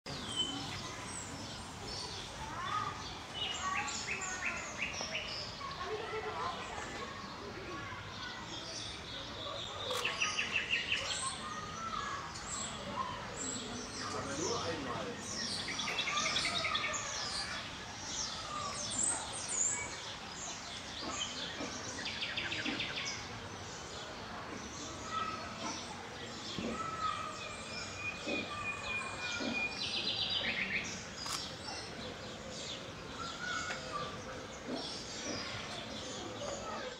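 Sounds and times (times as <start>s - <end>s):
outdoor background noise: 0.0s - 36.9s
small birds chirping: 0.1s - 36.9s
sharp click: 31.2s - 31.5s.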